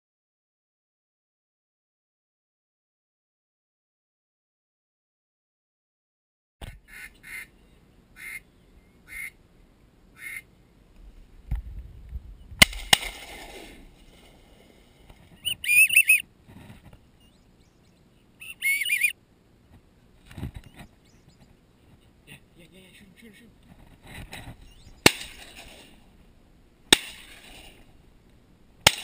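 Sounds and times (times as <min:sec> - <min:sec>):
duck quacking: 0:06.8 - 0:07.5, 0:08.2 - 0:09.4, 0:10.1 - 0:10.5, 0:15.4 - 0:16.2, 0:18.4 - 0:19.1.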